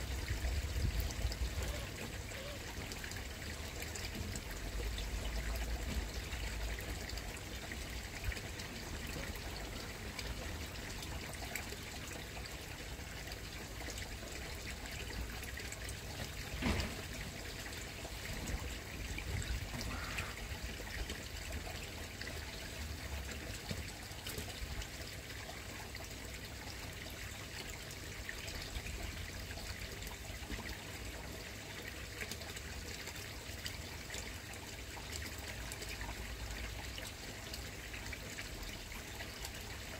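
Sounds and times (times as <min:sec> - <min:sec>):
water trickling into pond: 0:00.0 - 0:39.9.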